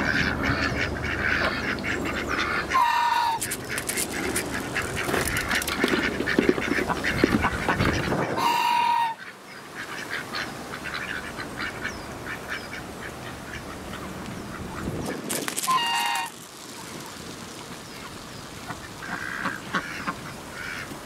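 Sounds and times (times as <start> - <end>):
ducks quacking: 0.0 - 16.4, 18.0 - 21.0
goose honking: 0.0 - 16.4.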